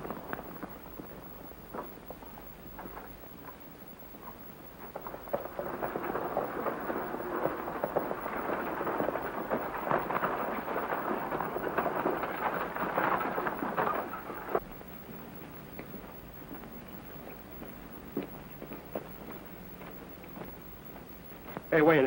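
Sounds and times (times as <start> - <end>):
buggy wheels rattling: 0.0 - 22.0
fast hoofbeats: 4.3 - 14.6.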